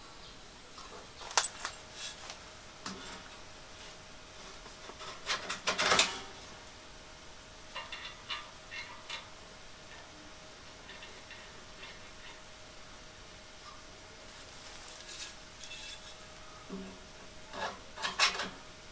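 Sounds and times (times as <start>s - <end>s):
metal clinks and rattling: 1.3s - 2.2s.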